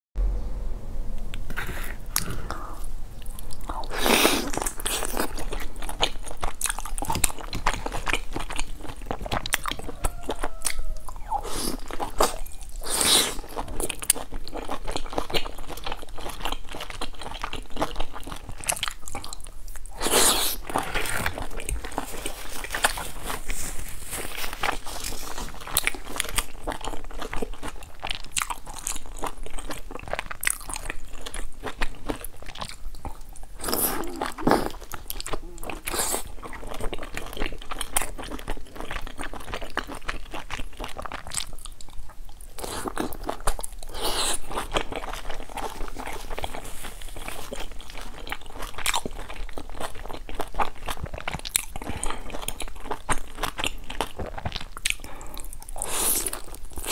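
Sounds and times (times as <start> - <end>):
person chewing food: 1.2 - 56.9.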